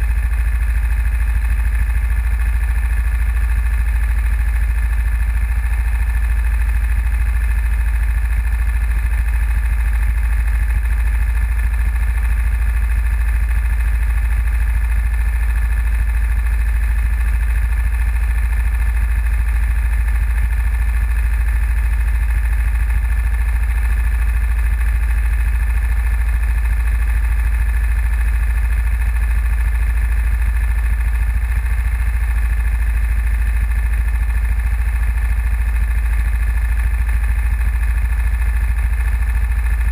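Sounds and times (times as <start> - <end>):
go-kart engines idling: 0.0 - 39.9.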